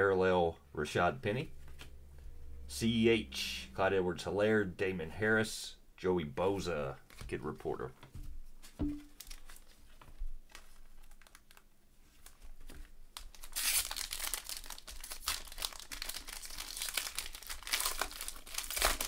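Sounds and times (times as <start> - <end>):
foil pack crinkling: 9.2 - 11.6, 12.2 - 19.0.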